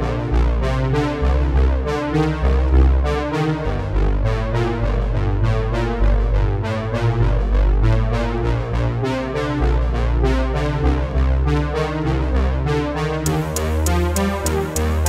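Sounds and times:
keyboard and synthesizer music: 0:00.0 - 0:15.0.

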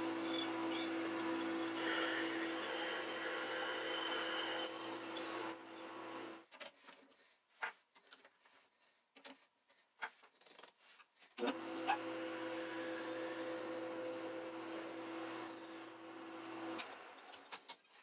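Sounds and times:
drill whine cutting metal: 0:00.0 - 0:05.8, 0:11.8 - 0:16.5
lathe motor hum: 0:11.5 - 0:16.8.

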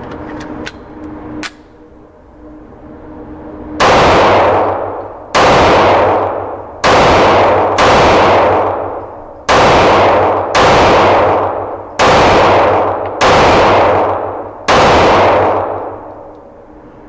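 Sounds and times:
handgun shots echoing indoors: 0:03.8 - 0:16.4.

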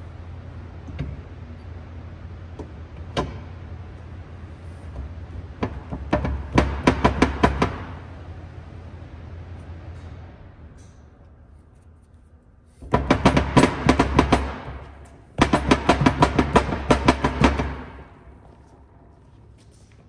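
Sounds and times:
steady low hum: 0:00.0 - 0:20.0
clatter of sharp knocks: 0:05.0 - 0:08.1, 0:12.8 - 0:18.3.

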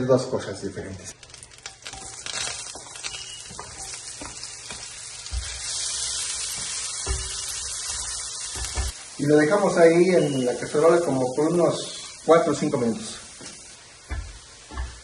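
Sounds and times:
onion and garlic sizzling in oil: 0:01.0 - 0:15.0
spatula tapping and scraping pan: 0:01.6 - 0:05.7, 0:06.4 - 0:09.0, 0:14.0 - 0:15.0.

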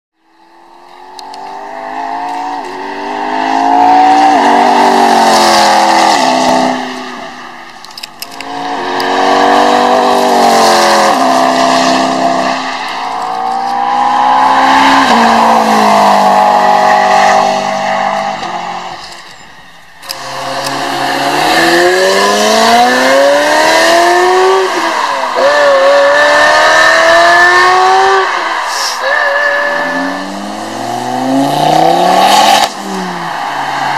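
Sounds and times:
race car engines accelerating: 0:00.2 - 0:33.9
sports car engine revving: 0:20.1 - 0:28.3.

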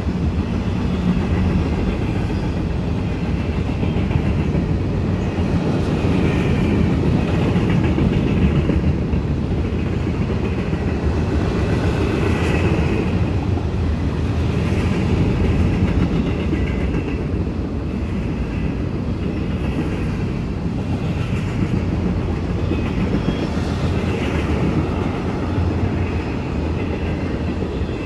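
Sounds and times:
clickety-clack of rails: 0:00.0 - 0:28.0
train wheels rumbling on rails: 0:00.0 - 0:28.0.

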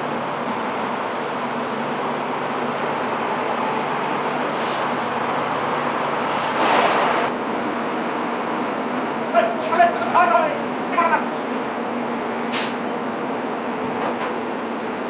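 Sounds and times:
forklift engine running: 0:00.0 - 0:07.7
machinery din: 0:00.2 - 0:07.3
brief hisses: 0:06.3 - 0:06.9.

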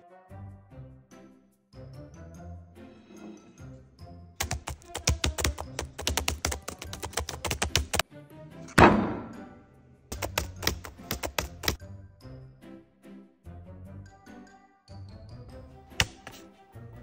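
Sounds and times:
background music: 0:00.0 - 0:17.0
rapid typing on laptop keyboard: 0:04.4 - 0:08.0, 0:10.1 - 0:11.8, 0:16.0 - 0:16.4
loud thunk: 0:08.7 - 0:09.5.

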